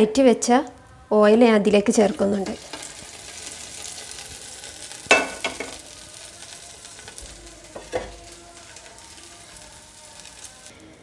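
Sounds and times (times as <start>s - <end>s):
hot oil sizzling in pot: 1.9s - 10.7s
cookware clanking: 5.1s - 5.8s, 7.7s - 8.2s.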